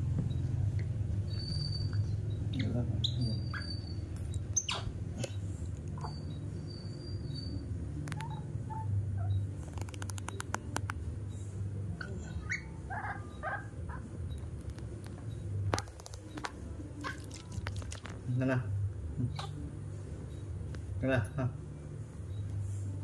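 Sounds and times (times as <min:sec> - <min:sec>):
baby monkey squeaking: 0:01.3 - 0:05.4, 0:06.0 - 0:10.4, 0:12.0 - 0:14.4
sharp clicks: 0:09.6 - 0:11.0.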